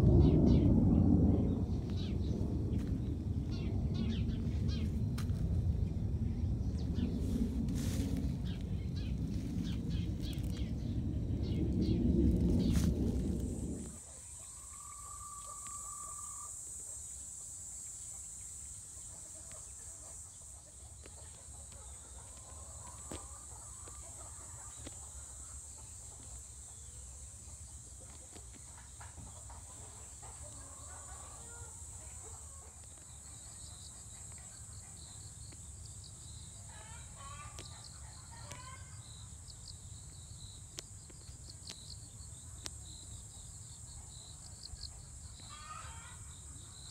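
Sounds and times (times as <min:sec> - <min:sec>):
low rumble: 0:00.0 - 0:14.2
high insect drone: 0:00.0 - 0:46.9
faint bird calls: 0:13.9 - 0:16.6.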